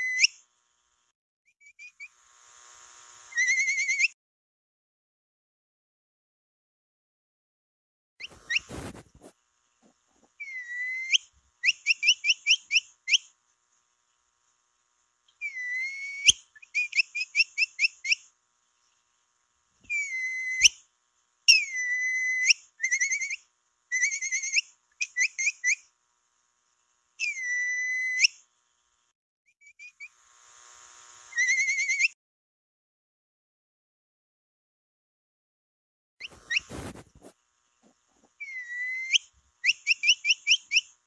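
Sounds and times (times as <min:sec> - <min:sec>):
high whistles and chirps: 0:03.3 - 0:04.2, 0:10.4 - 0:13.3, 0:15.4 - 0:18.2, 0:19.9 - 0:20.8, 0:21.5 - 0:25.8, 0:27.2 - 0:28.4, 0:31.3 - 0:32.2, 0:36.2 - 0:37.0, 0:38.4 - 0:40.9.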